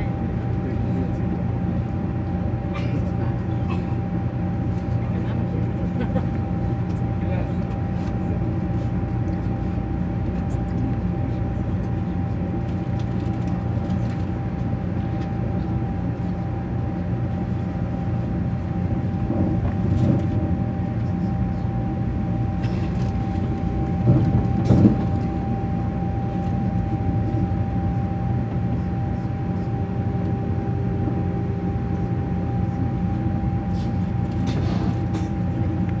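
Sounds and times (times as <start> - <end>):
train wheels rumbling on rail: 9.2 - 27.2, 31.0 - 36.0.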